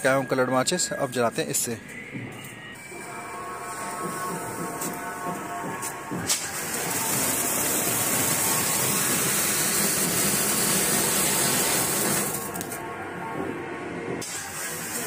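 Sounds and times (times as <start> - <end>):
firework fountain hissing: 6.3 - 12.8, 14.2 - 15.0.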